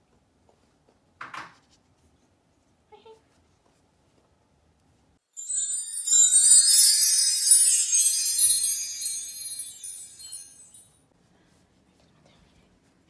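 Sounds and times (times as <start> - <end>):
shimmering chime sparkle effect: 5.4 - 10.9.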